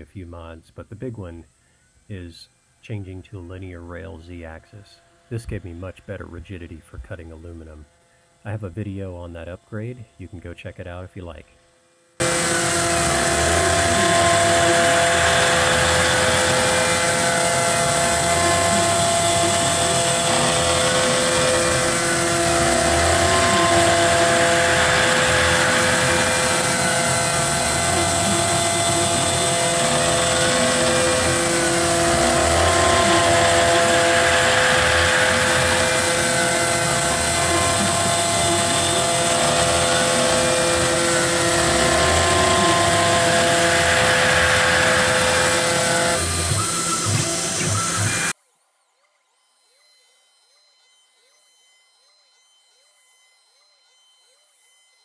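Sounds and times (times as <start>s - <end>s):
steady hiss: 0.0s - 15.0s
metal cutting noise: 0.7s - 11.4s, 12.2s - 48.4s
router spindle whine: 0.7s - 48.4s.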